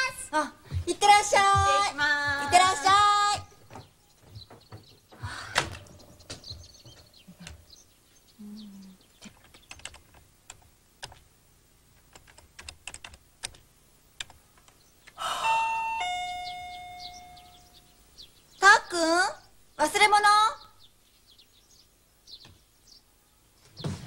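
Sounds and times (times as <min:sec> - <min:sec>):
keyboard typing: 0:09.2 - 0:11.3, 0:12.0 - 0:13.6, 0:14.2 - 0:15.2
doorbell two-note chime: 0:15.4 - 0:17.7.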